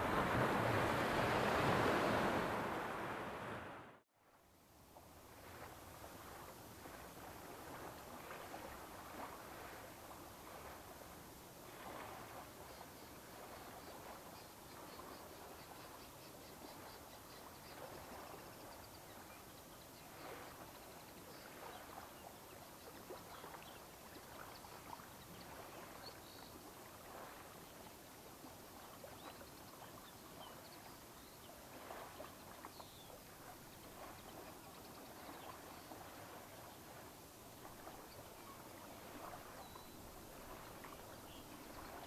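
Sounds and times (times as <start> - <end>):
small waves lapping on shore: 0.0 - 42.0
faint bird chirps: 12.6 - 26.7, 29.0 - 37.0, 37.7 - 42.0.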